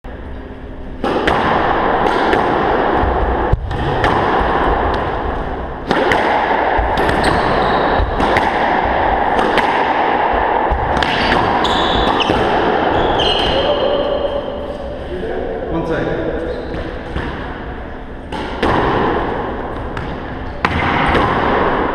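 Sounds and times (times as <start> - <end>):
squash ball cracking off racquets: 1.0 - 13.6, 18.3 - 21.9.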